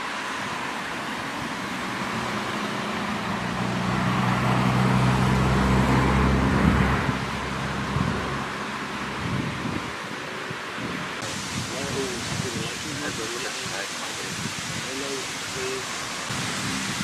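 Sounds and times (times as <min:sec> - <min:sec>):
car engine passing by: 0:00.0 - 0:11.3, 0:16.1 - 0:17.0
wind on microphone: 0:00.4 - 0:17.0.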